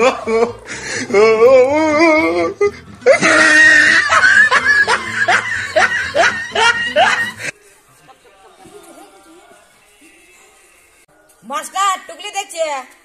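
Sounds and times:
person laughing: 0:00.0 - 0:07.5
warbling vocal tone: 0:00.0 - 0:07.5
music: 0:00.0 - 0:13.0.

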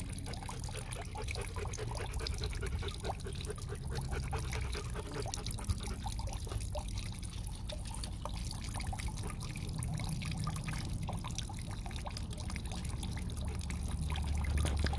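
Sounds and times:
water dripping: 0:00.0 - 0:14.9.

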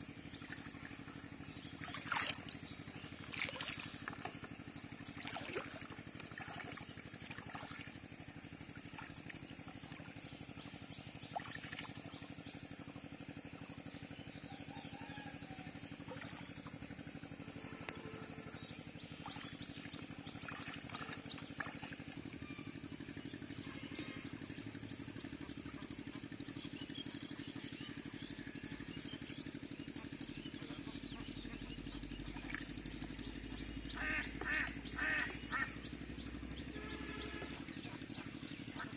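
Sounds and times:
low motor drone: 0:00.0 - 0:38.9
water splashing from wading legs: 0:00.2 - 0:12.4, 0:15.5 - 0:23.2.

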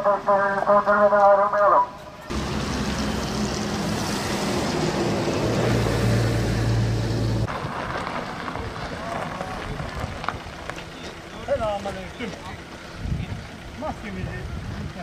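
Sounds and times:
outdoor noise: 0:00.0 - 0:15.0
drone propellers humming: 0:02.3 - 0:07.5
wind rushing on microphone: 0:13.0 - 0:15.0.

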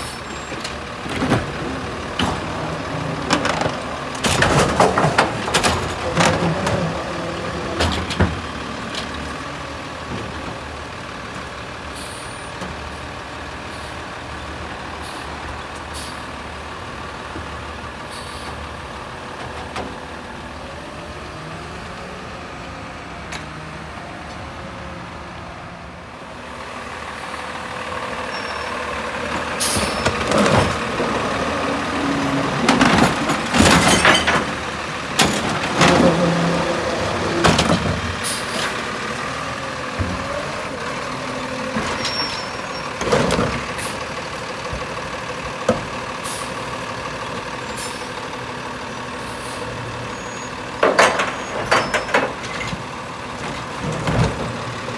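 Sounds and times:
hydraulic arm lifting carts: 0:00.0 - 0:14.4, 0:26.6 - 0:54.9
garbage truck diesel engine running: 0:00.0 - 0:54.9
carts banging against hopper: 0:01.1 - 0:09.2, 0:29.6 - 0:31.4, 0:32.4 - 0:38.7, 0:50.8 - 0:52.9.

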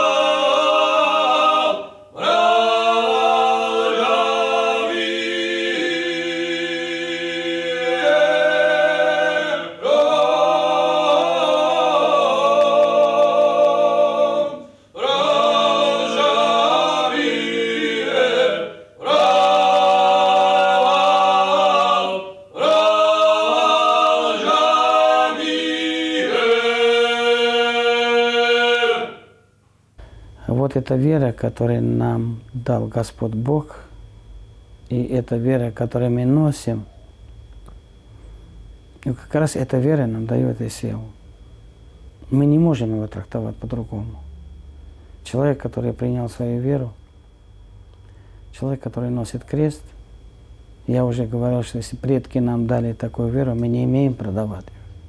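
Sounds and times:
unaccompanied choir singing: 0:00.0 - 0:29.5.

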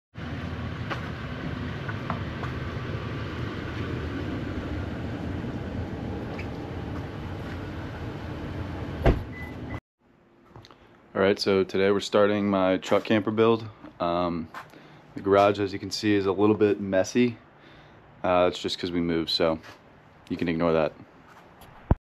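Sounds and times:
vehicle rumbling in motion: 0:00.2 - 0:09.8.

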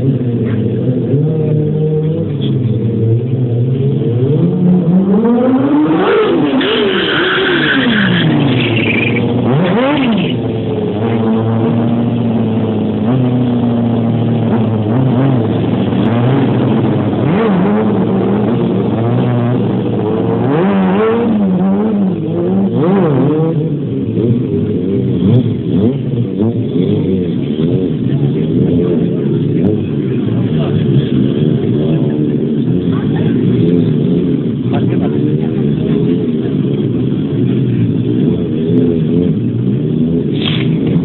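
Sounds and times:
motorcycle engines revving: 0:00.0 - 0:41.0.

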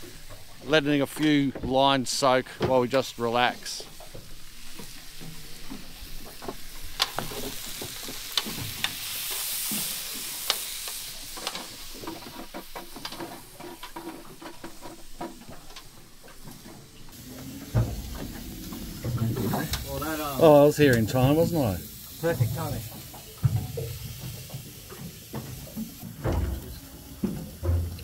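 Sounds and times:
food sizzling in frying pan: 0:06.0 - 0:13.0, 0:17.1 - 0:28.0.

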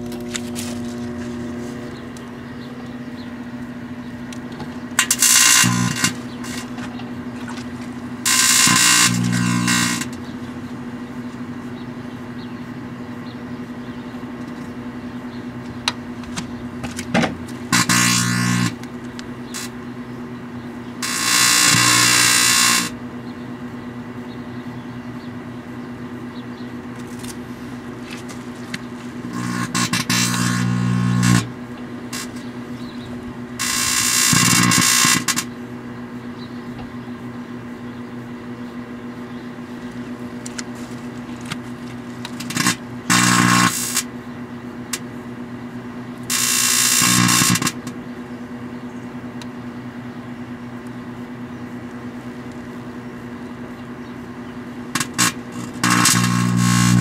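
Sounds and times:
metal arcing buzzing crackling: 0:00.0 - 0:11.8, 0:15.5 - 0:23.2, 0:26.8 - 0:36.3, 0:39.0 - 0:48.0, 0:51.7 - 0:57.0
microwave oven humming: 0:00.0 - 0:57.0.

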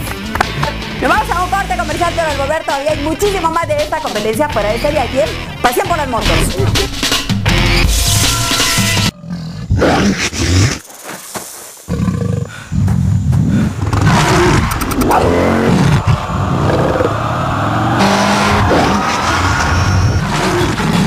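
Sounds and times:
motorcycle engine revving: 0:13.8 - 0:21.0.

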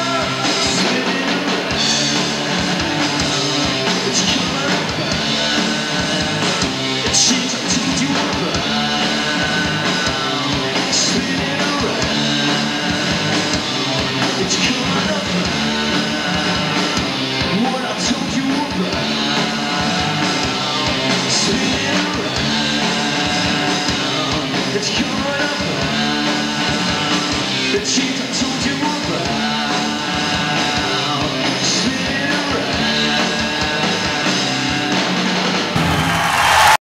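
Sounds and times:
person singing: 0:00.0 - 0:35.2
electric guitar: 0:00.0 - 0:35.9
drums: 0:00.0 - 0:36.8.

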